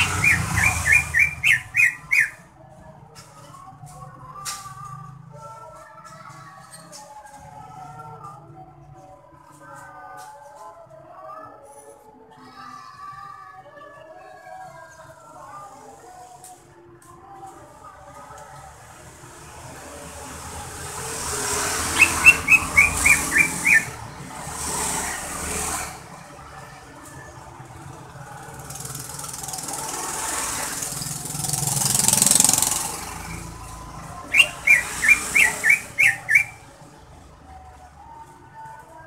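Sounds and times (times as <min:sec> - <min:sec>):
bird calling: 0:00.0 - 0:02.4, 0:21.8 - 0:24.0, 0:34.3 - 0:36.6
passing traffic rushing: 0:00.0 - 0:02.6, 0:17.9 - 0:37.8.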